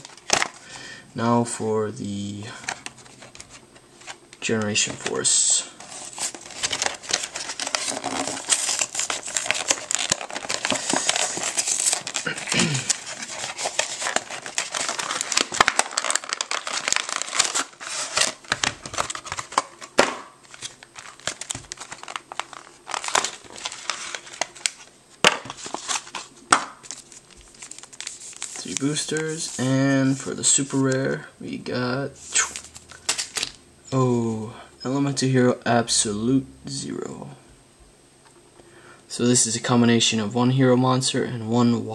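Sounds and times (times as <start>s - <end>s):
foil packs crackling: 0.0s - 0.7s, 2.5s - 30.3s
plastic packaging crinkling: 0.0s - 0.7s, 2.5s - 31.0s, 32.3s - 33.6s.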